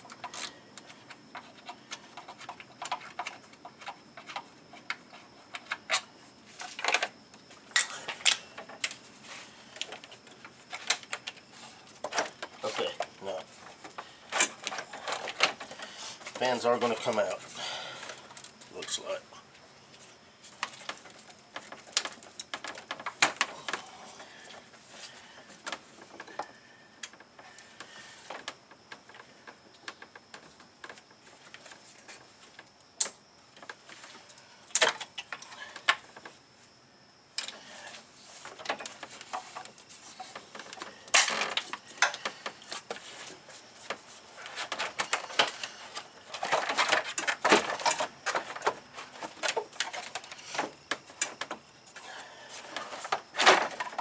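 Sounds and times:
hard parts clicking and rattling: 0:38.4 - 0:54.0.

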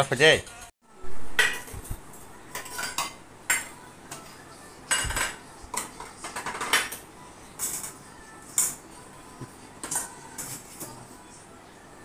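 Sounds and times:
metal spoon clinking against bowls: 0:02.5 - 0:04.3.

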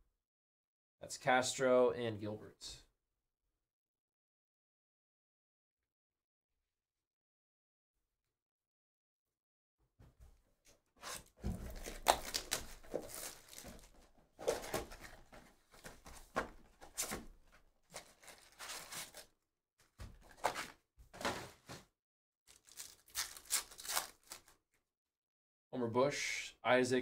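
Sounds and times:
foil pack ripping and crinkling: 0:11.7 - 0:14.7, 0:18.0 - 0:19.3, 0:22.5 - 0:24.6.

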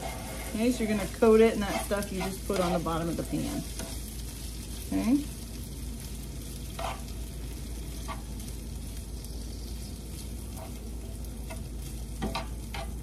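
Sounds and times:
utensil scraping a pan: 0:00.0 - 0:04.1, 0:06.6 - 0:07.2, 0:07.9 - 0:08.4, 0:10.5 - 0:13.0
corn sizzling in oil: 0:00.0 - 0:13.0.

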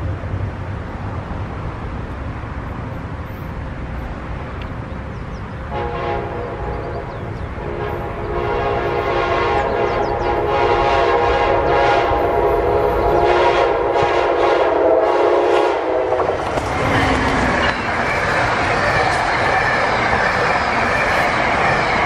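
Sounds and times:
train rushing past: 0:00.0 - 0:22.0
wheel and rail noise: 0:00.0 - 0:22.0
train horn blast: 0:05.7 - 0:17.6.

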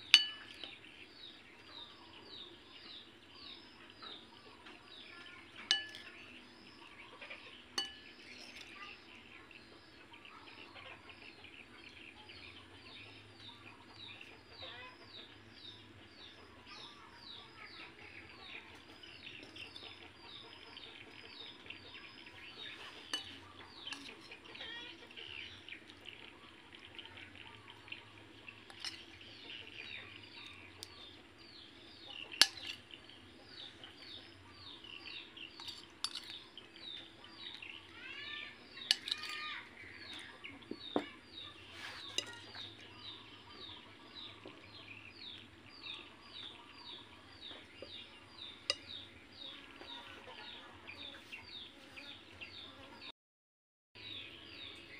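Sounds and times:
birds chirping: 0:00.0 - 0:53.1, 0:54.0 - 0:54.9
metal spoon clinking on plate: 0:00.1 - 0:00.7, 0:05.6 - 0:06.2, 0:07.8 - 0:08.8, 0:23.0 - 0:24.4, 0:28.7 - 0:29.2, 0:32.4 - 0:32.9, 0:35.5 - 0:36.4, 0:38.8 - 0:39.4, 0:41.8 - 0:42.8, 0:48.7 - 0:49.0.

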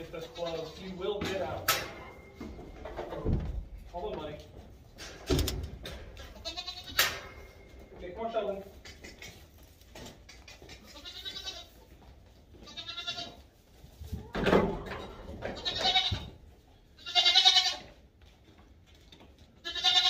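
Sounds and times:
goat bleating: 0:00.0 - 0:01.0, 0:06.2 - 0:07.0, 0:10.6 - 0:13.5, 0:15.5 - 0:18.0, 0:19.6 - 0:20.0.

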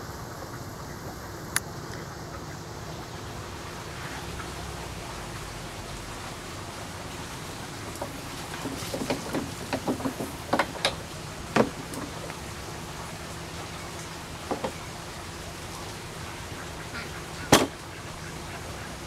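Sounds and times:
honeybees humming: 0:00.0 - 0:19.0.

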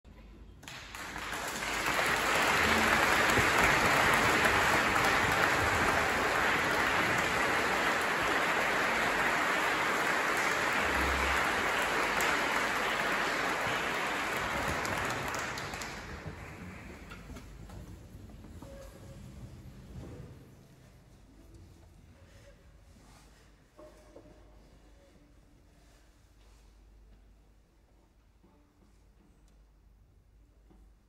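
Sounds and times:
audience applauding: 0:00.6 - 0:17.2.

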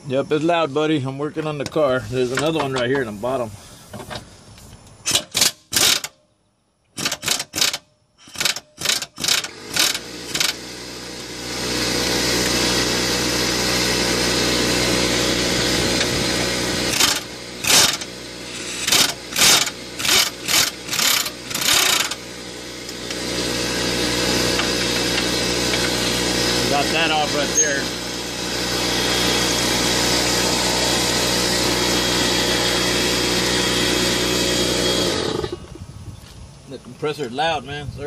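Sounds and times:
pneumatic impact wrench bursts: 0:03.6 - 0:06.2, 0:06.9 - 0:35.8
air compressor running: 0:05.1 - 0:06.1, 0:07.0 - 0:35.8.

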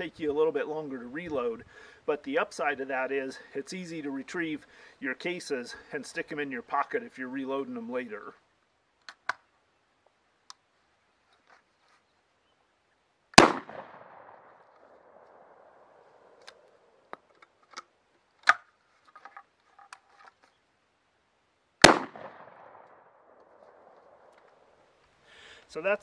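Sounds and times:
shotgun firing: 0:13.4 - 0:14.5, 0:21.8 - 0:22.9.

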